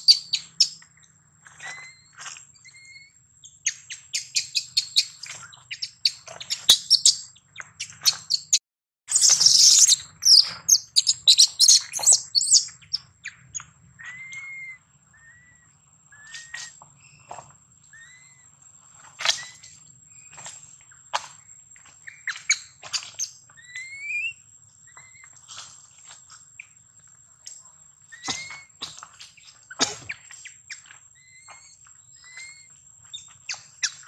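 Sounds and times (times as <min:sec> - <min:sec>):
small birds chirping: 0:00.0 - 0:34.0
whistled bird notes: 0:01.6 - 0:03.2, 0:14.0 - 0:17.3, 0:28.1 - 0:28.8.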